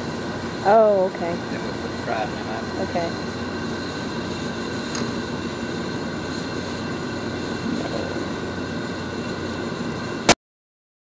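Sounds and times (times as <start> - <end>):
water boiling: 0.0 - 10.3
propane burner roaring: 0.0 - 10.4
burner click: 3.0 - 10.4.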